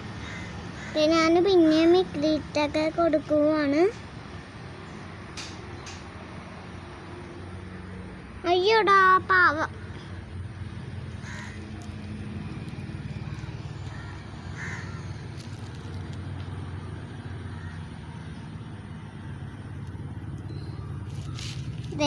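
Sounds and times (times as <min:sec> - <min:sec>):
faint distant calls: 0:04.7 - 0:22.0.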